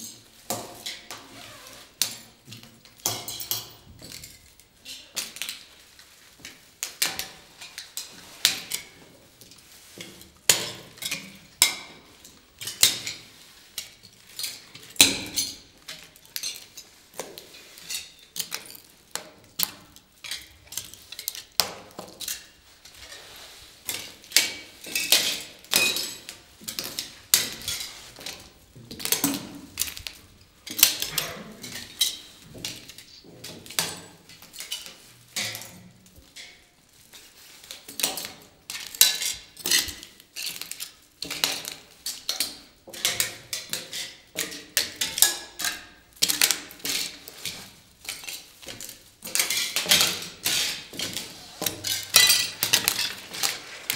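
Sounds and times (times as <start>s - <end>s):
heels stepping on glass tiles: 48.0s - 53.9s
glass tiles clinking: 51.8s - 53.4s.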